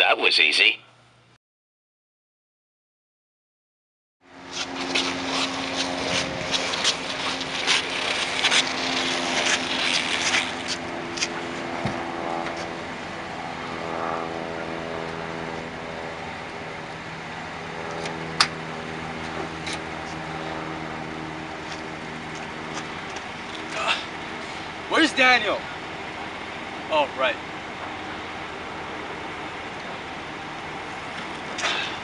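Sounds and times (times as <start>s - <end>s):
low drone of held tones: 4.3s - 32.0s
body dragged on pavement: 4.4s - 12.8s
shoes scuffing: 4.5s - 12.8s.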